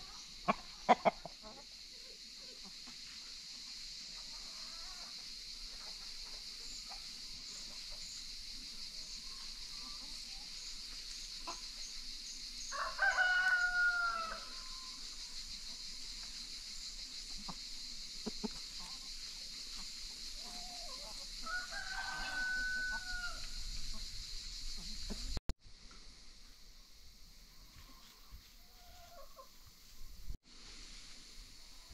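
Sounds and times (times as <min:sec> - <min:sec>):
soft clucks: 0:00.4 - 0:01.7, 0:18.2 - 0:19.1
steady high hiss: 0:01.5 - 0:31.9
rooster crowing: 0:12.7 - 0:15.0, 0:21.4 - 0:23.6.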